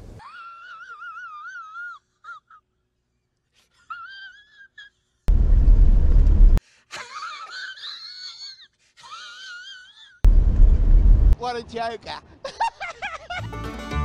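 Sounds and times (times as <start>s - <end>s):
loud low burst of noise: 5.3s - 6.6s, 10.3s - 11.4s
man laughing: 12.4s - 13.6s.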